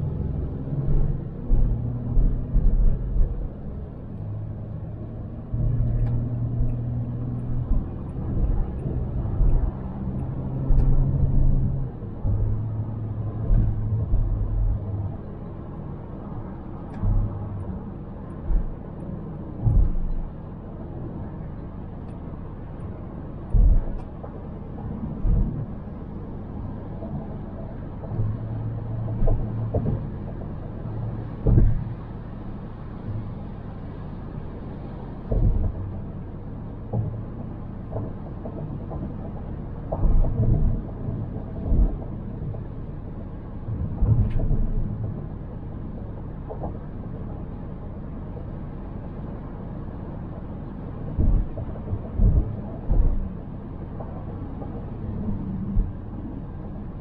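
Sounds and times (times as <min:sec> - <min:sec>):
car road noise rumble: 0:00.0 - 0:57.0
dull thumps over road bumps: 0:05.6 - 0:15.2, 0:19.6 - 0:20.3, 0:23.5 - 0:25.9, 0:28.0 - 0:32.3, 0:35.2 - 0:36.2, 0:36.9 - 0:42.8, 0:43.7 - 0:45.1, 0:51.1 - 0:56.1.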